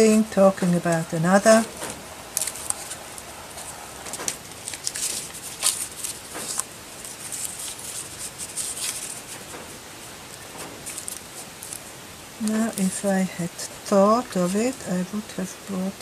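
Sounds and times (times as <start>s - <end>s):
paper pages rustling and crinkling: 1.5s - 13.0s.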